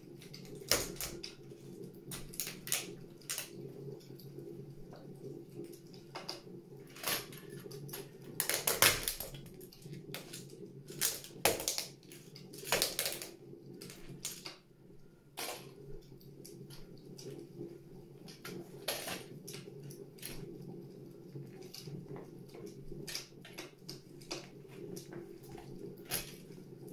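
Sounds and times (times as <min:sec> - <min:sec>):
plastic toys cracking underfoot: 0:07.0 - 0:09.5, 0:10.2 - 0:14.6.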